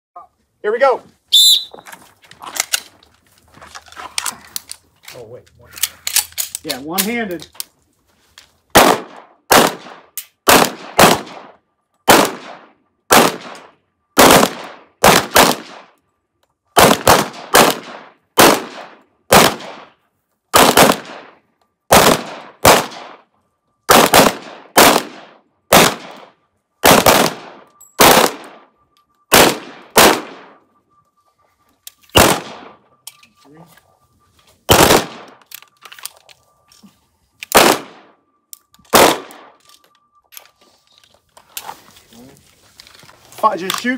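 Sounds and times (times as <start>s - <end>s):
pistol shots with ringing echo: 8.7s - 16.0s, 16.8s - 23.3s, 23.9s - 30.8s, 32.1s - 33.0s, 34.7s - 35.4s, 37.5s - 39.6s.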